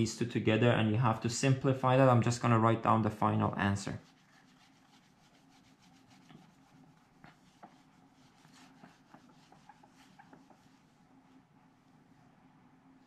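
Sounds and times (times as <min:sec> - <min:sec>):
eraser rubbing on whiteboard: 0:04.0 - 0:10.9.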